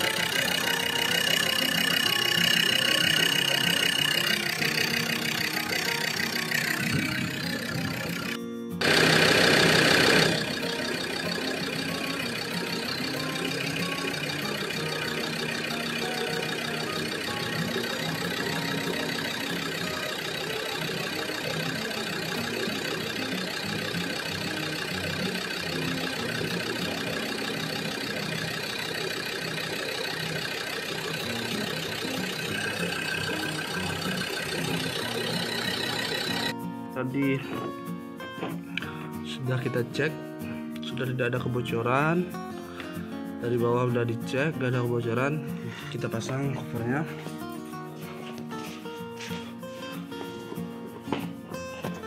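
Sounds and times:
diesel engine idling: 0:00.0 - 0:36.5.

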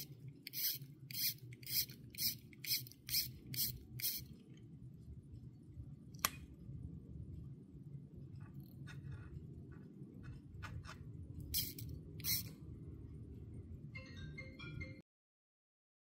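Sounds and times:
watch crown winding rasps: 0:00.0 - 0:04.3, 0:11.6 - 0:12.5.

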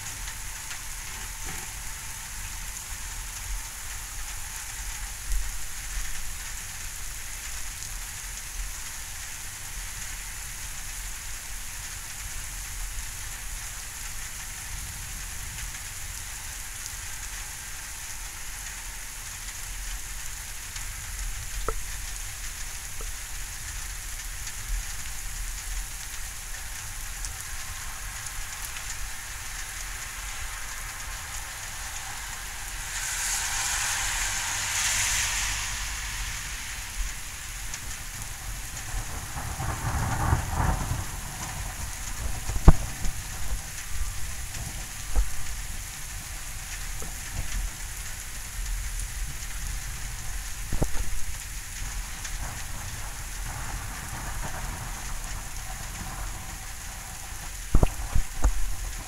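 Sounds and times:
steady rain falling: 0:00.0 - 0:59.0
thunder rumbling: 0:37.8 - 0:45.8.

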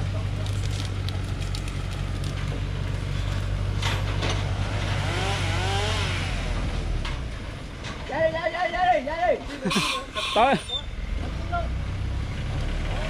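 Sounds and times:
diesel truck engine idling: 0:00.0 - 0:04.7.

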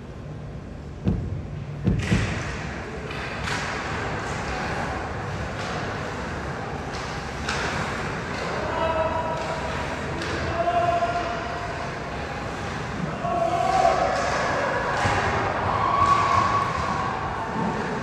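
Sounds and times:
ice rink noise: 0:00.0 - 0:18.0
heavy thuds: 0:01.0 - 0:02.8
sharp knocks: 0:01.0 - 0:02.8.

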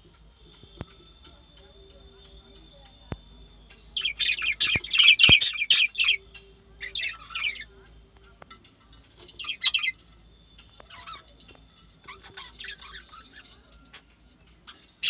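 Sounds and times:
budgerigars chattering: 0:04.0 - 0:06.2, 0:06.8 - 0:07.7, 0:09.4 - 0:10.0, 0:12.0 - 0:13.6.

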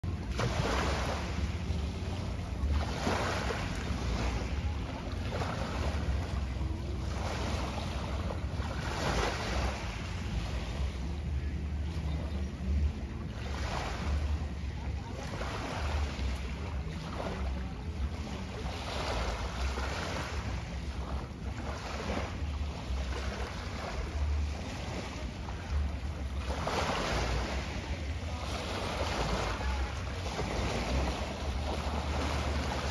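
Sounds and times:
small waves washing onto shore: 0:00.0 - 0:32.9
wind rumble on microphone: 0:00.0 - 0:32.9.

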